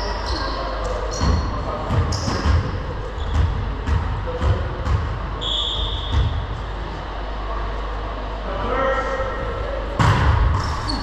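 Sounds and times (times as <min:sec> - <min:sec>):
short referee whistle: 0:05.4 - 0:06.2.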